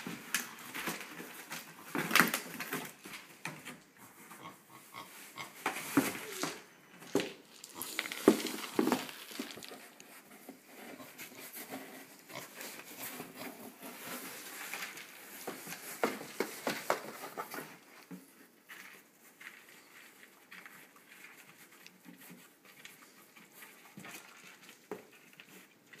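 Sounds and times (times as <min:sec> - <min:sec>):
cardboard knocking and scraping: 0:07.2 - 0:11.0.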